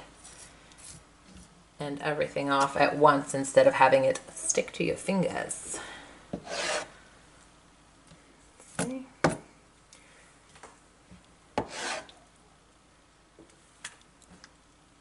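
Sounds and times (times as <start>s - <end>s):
knife scraping plastic cutting board: 6.4s - 6.9s, 11.6s - 12.2s.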